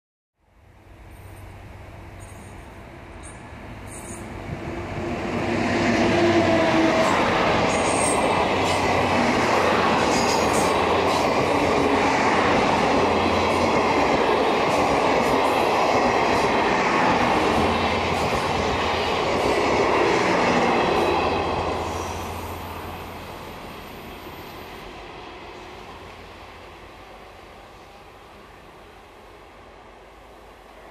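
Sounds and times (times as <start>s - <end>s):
train wheels rumbling on rail: 1.0s - 30.9s.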